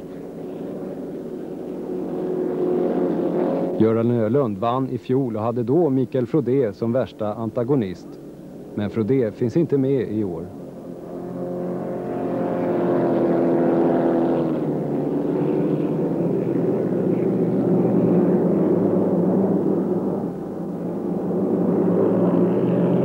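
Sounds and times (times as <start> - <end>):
powerboat engine running hard: 0.0 - 4.6, 9.9 - 23.0.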